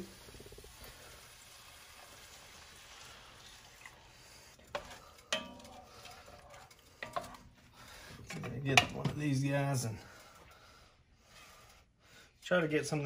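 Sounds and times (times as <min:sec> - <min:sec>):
faint sizzle: 0:00.0 - 0:08.2
milk poured into hot pot: 0:00.2 - 0:06.9
wooden spatula stirring and knocking: 0:03.5 - 0:09.9.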